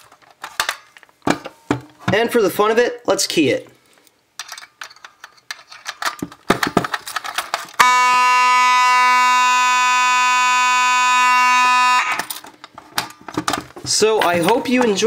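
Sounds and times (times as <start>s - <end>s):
keys and metal cover rattling: 4.4s - 7.8s, 14.2s - 15.0s
fire alarm horn buzzing: 7.8s - 12.2s.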